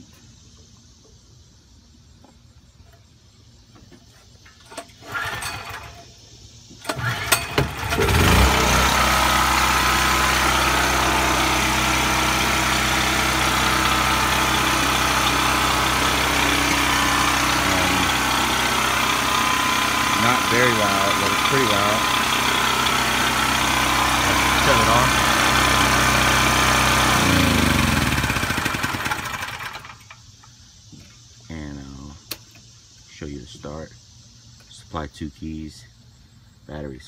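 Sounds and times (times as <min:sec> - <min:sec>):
recoil starter pulling: 0:04.5 - 0:06.1, 0:06.8 - 0:30.1
generator engine running: 0:04.6 - 0:06.0, 0:06.8 - 0:30.1.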